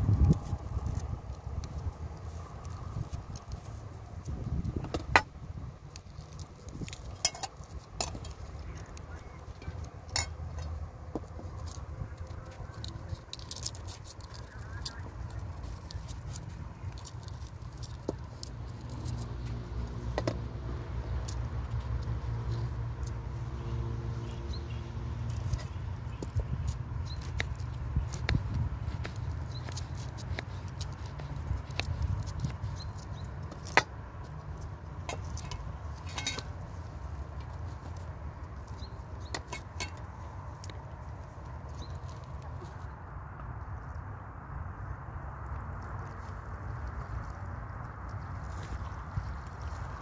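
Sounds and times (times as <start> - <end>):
steady low rumble: 0.0 - 50.0
peeler scraping vegetables: 25.2 - 33.9.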